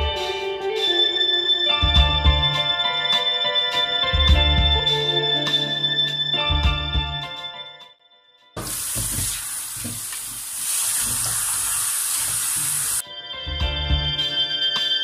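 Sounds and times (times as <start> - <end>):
background music: 0.0 - 8.7, 13.0 - 15.0
tap water running into sink: 8.6 - 13.0.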